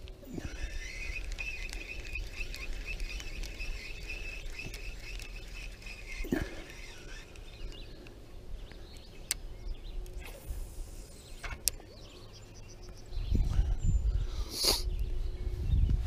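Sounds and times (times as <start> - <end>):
spinning reel whirring: 0.0 - 8.0.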